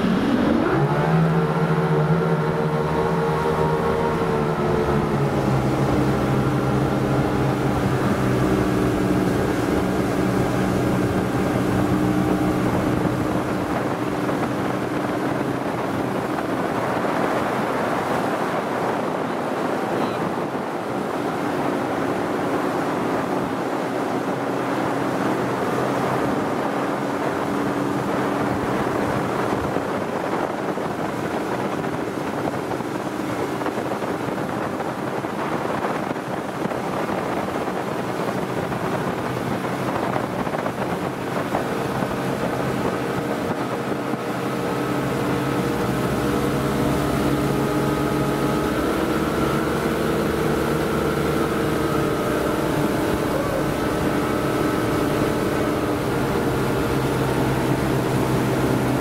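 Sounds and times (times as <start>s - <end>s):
outboard motors running hard: 0.0s - 59.0s
rushing wake water: 0.0s - 59.0s
wind buffeting microphone: 0.0s - 59.0s.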